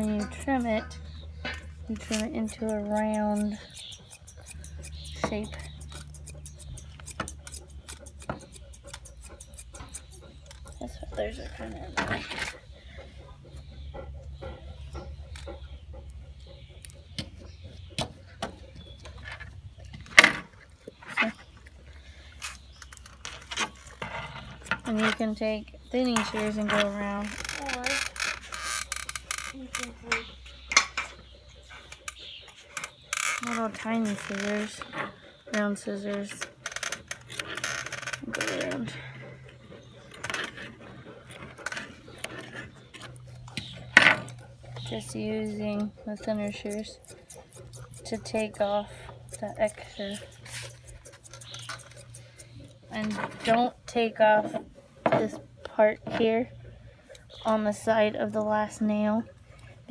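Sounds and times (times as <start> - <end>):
grooming comb and scissors clicking: 1.9 - 11.5, 44.3 - 53.6.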